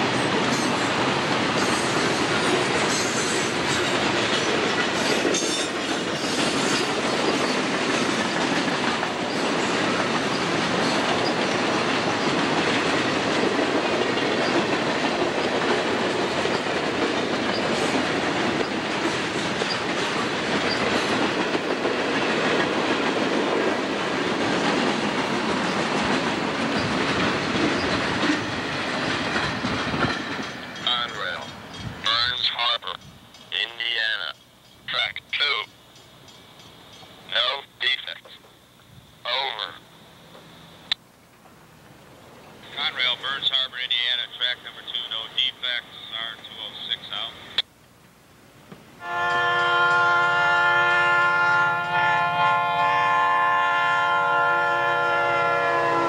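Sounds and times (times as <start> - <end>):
train wheels clicking over rail joints: 0.0 - 32.2, 32.8 - 33.5
train cars rolling rumble: 0.0 - 47.6.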